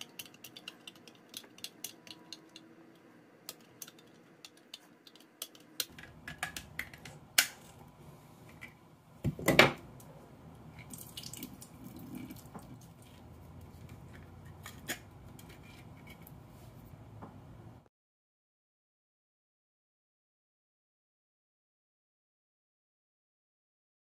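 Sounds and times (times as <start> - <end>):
liquid trickling into sink: 10.8 - 13.2.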